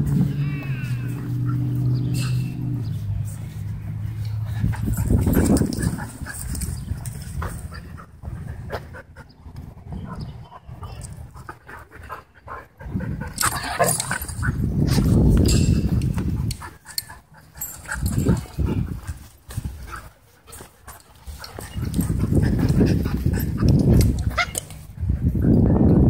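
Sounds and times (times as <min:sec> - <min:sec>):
scuffling on dirt and grass: 0:00.0 - 0:08.9, 0:17.5 - 0:25.0.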